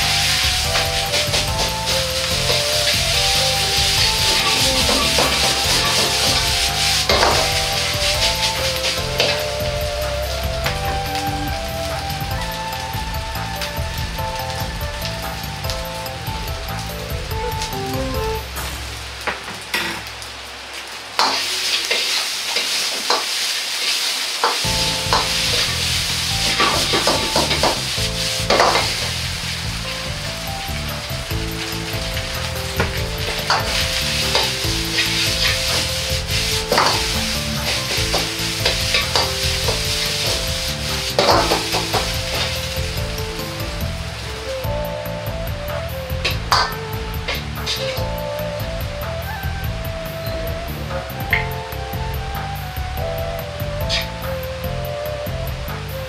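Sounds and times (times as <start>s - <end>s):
metal ladle scraping wok: 0.0s - 9.6s, 31.6s - 43.0s
soft background music: 0.0s - 19.2s, 24.6s - 56.0s
rice sizzling in a wok: 0.0s - 56.0s
metal ladle scraping pan: 2.5s - 9.4s.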